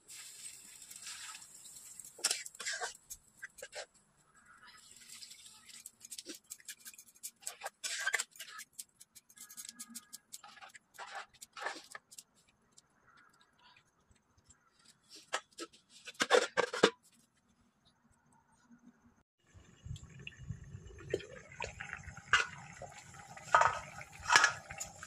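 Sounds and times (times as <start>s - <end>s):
water pouring into simmering pot: 19.6s - 25.0s
metal lid clattering: 23.5s - 24.8s.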